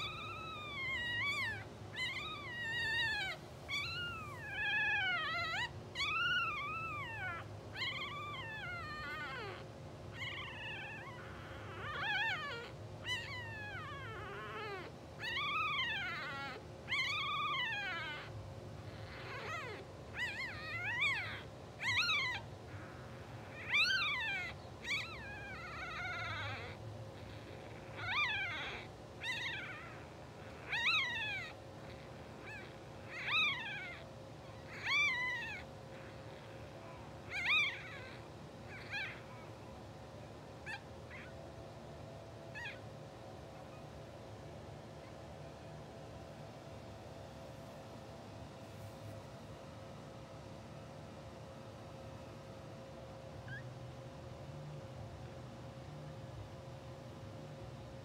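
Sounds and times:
newborn puppies squealing: 0:00.0 - 0:44.2, 0:53.4 - 0:53.7.

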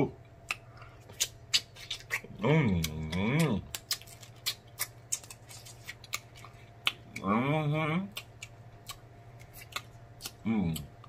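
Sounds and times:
person humming mmm: 0:02.3 - 0:03.6, 0:10.2 - 0:10.9.

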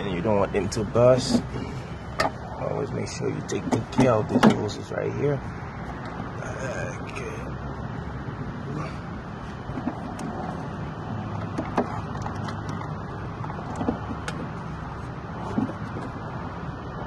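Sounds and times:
steady low hum: 0:00.0 - 0:17.0
clicks and knocks of metal lines: 0:03.4 - 0:04.9, 0:11.4 - 0:14.6.

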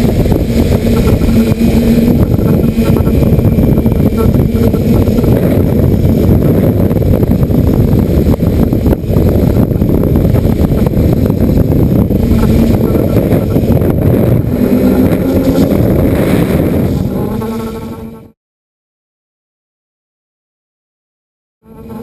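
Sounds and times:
drone motors and propellers humming: 0:00.0 - 0:18.4, 0:21.6 - 0:22.0
wind buffeting microphone: 0:00.0 - 0:18.4.

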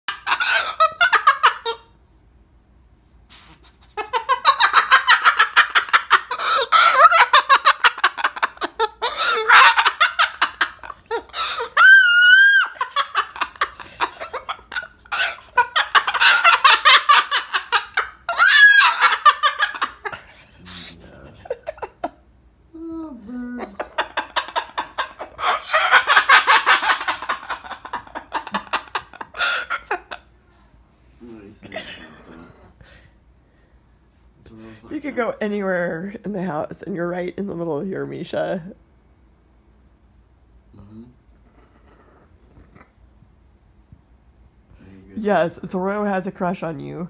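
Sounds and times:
cockatoo laugh-like chatter: 0:03.4 - 0:22.2, 0:23.3 - 0:30.3.

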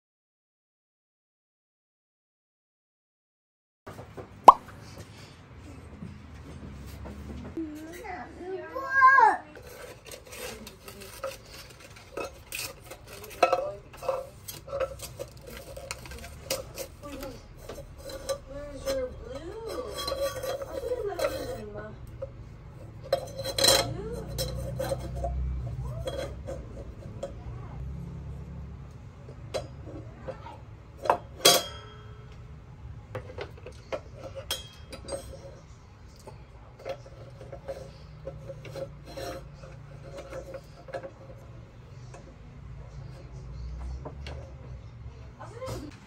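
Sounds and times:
objects being handled: 0:09.5 - 0:32.5, 0:33.1 - 0:44.8
clinks and knocks: 0:09.6 - 0:44.8.

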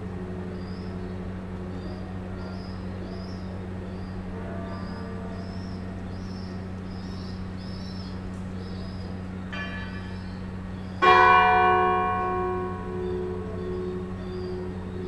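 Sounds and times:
birds chirping: 0:00.0 - 0:15.0
church bell ringing: 0:00.0 - 0:15.0
steady low hum: 0:00.0 - 0:15.0.

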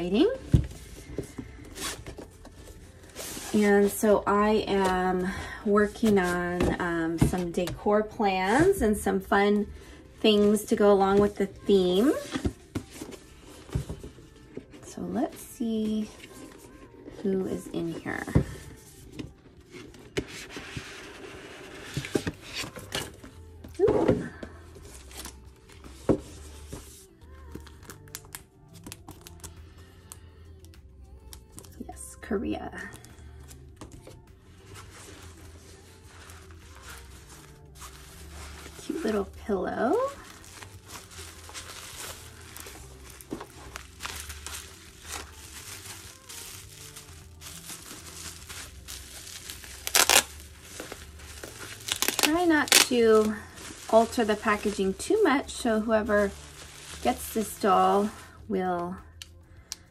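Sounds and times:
soft background music: 0:00.0 - 0:59.9
bubble wrap crinkling: 0:00.2 - 0:23.6, 0:24.4 - 0:29.5, 0:32.9 - 0:59.4
cardboard and plastic rustling: 0:00.2 - 0:29.5, 0:33.8 - 0:58.9
bubble wrap crackle: 0:24.8 - 0:29.5, 0:34.0 - 0:59.4.

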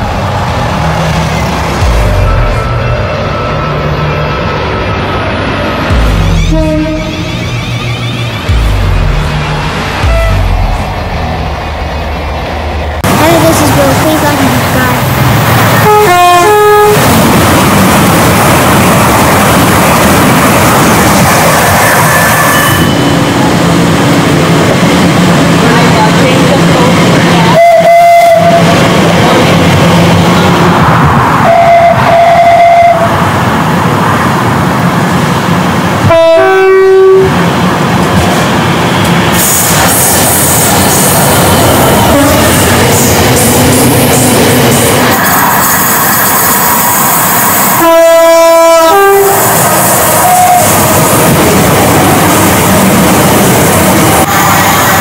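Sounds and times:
train passing at speed: 0:00.0 - 0:55.0
high train horn note: 0:05.9 - 0:07.8, 0:10.0 - 0:10.8, 0:15.8 - 0:17.1, 0:27.5 - 0:28.7, 0:31.4 - 0:33.1, 0:36.0 - 0:37.4, 0:42.1 - 0:42.6, 0:47.8 - 0:49.5, 0:50.2 - 0:50.8
two-tone train horn: 0:06.4 - 0:07.5, 0:10.0 - 0:10.6, 0:15.8 - 0:17.1, 0:27.5 - 0:28.7, 0:31.4 - 0:33.1, 0:36.0 - 0:37.4, 0:42.1 - 0:42.6, 0:47.8 - 0:49.5, 0:50.2 - 0:50.8
train horn three-note call: 0:36.0 - 0:37.3, 0:47.8 - 0:49.4.

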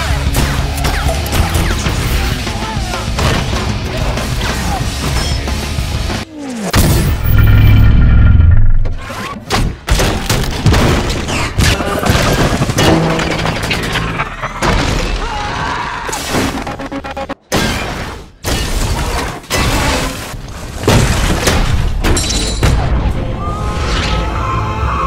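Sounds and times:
debris crashing and shattering: 0:10.0 - 0:16.8, 0:18.6 - 0:22.8.

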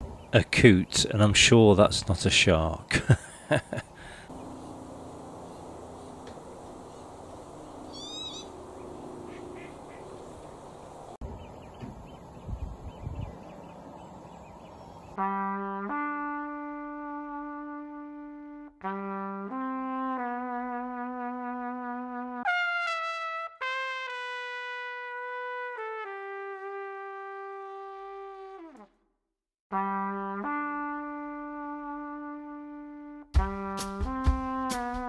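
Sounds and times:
slow brass melody: 0:15.2 - 0:29.0, 0:29.7 - 0:35.0.

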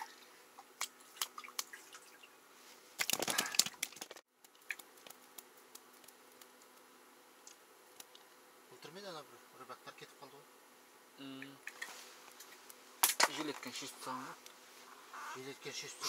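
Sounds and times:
faint steady hum: 0:00.0 - 0:16.0
wet scuffle: 0:02.7 - 0:05.5.

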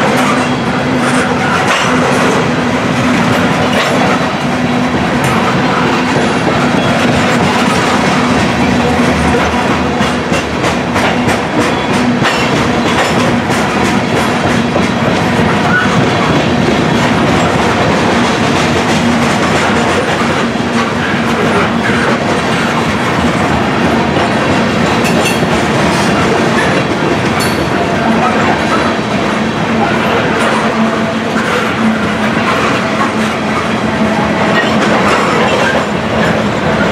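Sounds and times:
freight train rolling past: 0:00.0 - 0:36.9
wheels clickety-clack: 0:00.0 - 0:36.9.

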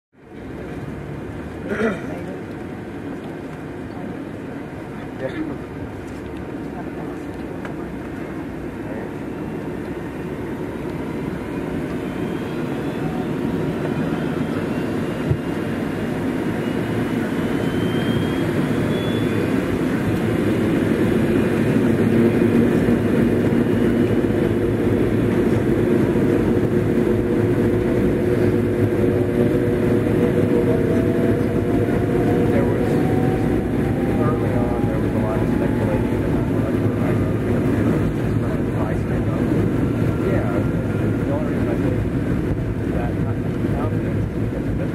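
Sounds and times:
airliner jet engines: 0:00.2 - 0:44.9
rising whine tones: 0:08.9 - 0:44.2.

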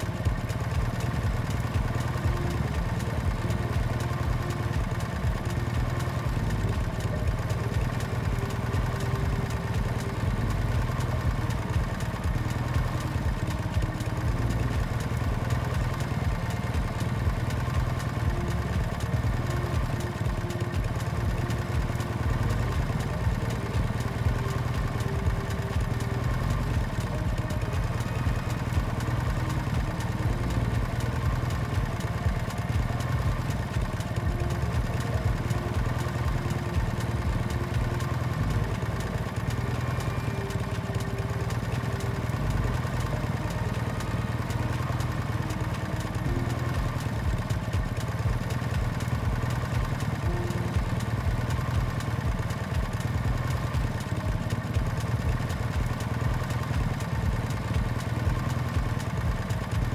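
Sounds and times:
motorbike engine running: 0:00.0 - 0:59.9.

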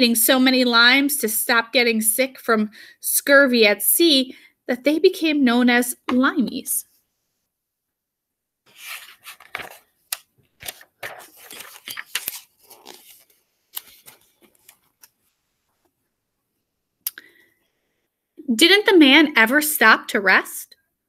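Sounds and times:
book pages turning: 0:08.7 - 0:15.9.

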